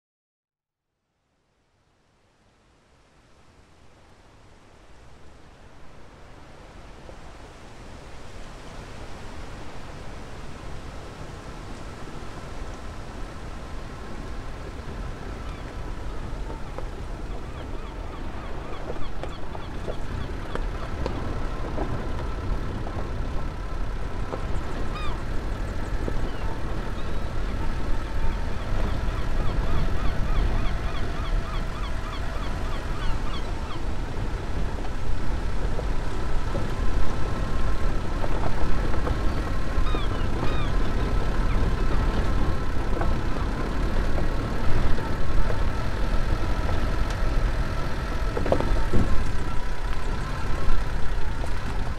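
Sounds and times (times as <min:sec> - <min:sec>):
steady low rumble: 0:09.6 - 0:51.9
birds calling: 0:15.4 - 0:23.6, 0:24.3 - 0:34.0, 0:38.5 - 0:43.5.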